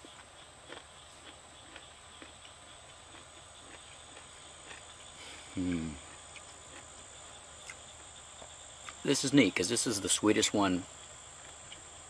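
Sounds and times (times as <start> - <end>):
man chewing: 0.0 - 9.0, 11.4 - 12.0
insects chirring: 0.0 - 12.0
man humming: 5.5 - 6.0.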